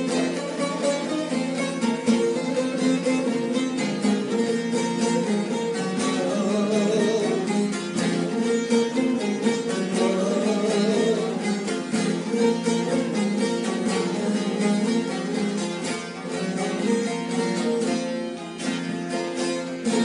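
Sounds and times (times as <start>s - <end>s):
plucked string instruments music: 0.0s - 20.0s.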